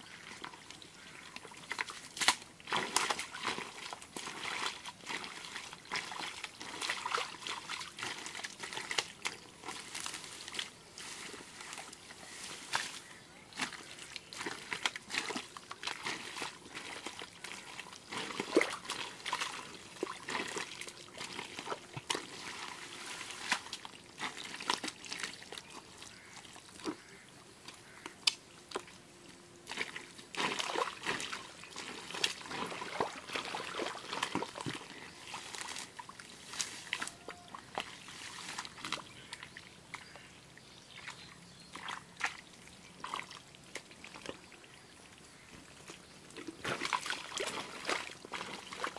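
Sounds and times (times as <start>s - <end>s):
mud squelching and sloshing: 0.0s - 48.9s
muddy water trickling: 0.0s - 48.9s
wet smacks in mud: 1.7s - 3.7s.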